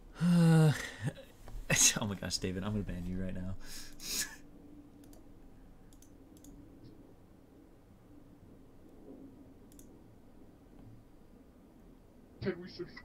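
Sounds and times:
low steady hum: 0.0s - 13.0s
faint computer clicks: 4.9s - 5.3s, 5.9s - 7.0s, 9.6s - 10.0s.

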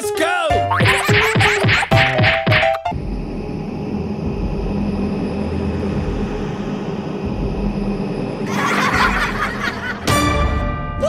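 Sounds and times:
deep rumbling of flaming meteor: 3.0s - 10.0s.

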